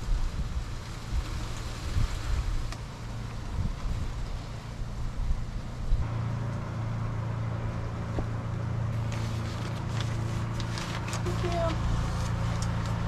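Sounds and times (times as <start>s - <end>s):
wind buffeting microphone: 0.0s - 6.1s
low engine hum: 0.0s - 13.0s
paper crackling as peeled: 8.9s - 13.0s.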